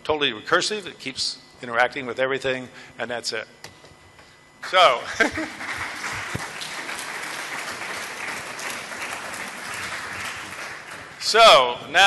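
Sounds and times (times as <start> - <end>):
audience applauding: 5.2 - 11.4.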